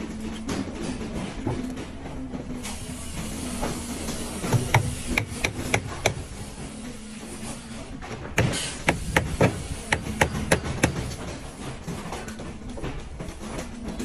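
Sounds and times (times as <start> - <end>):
hammer striking nails into wood: 4.5 - 6.2, 8.4 - 11.4.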